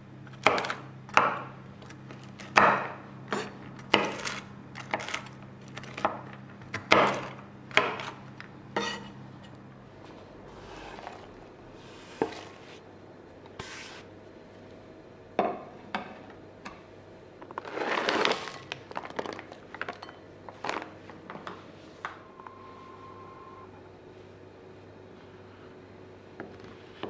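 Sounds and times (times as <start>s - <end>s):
rustling and crinkling: 17.4s - 22.0s
utensils clinking against dishes: 19.9s - 20.8s.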